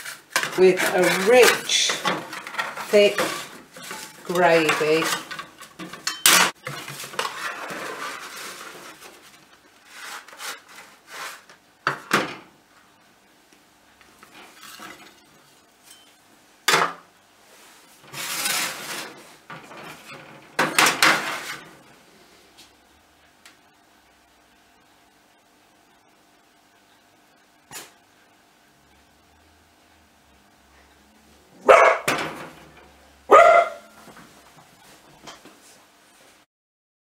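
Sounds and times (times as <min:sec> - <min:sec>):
metal spatula scraping baking tin: 0:00.0 - 0:11.5, 0:18.0 - 0:21.7.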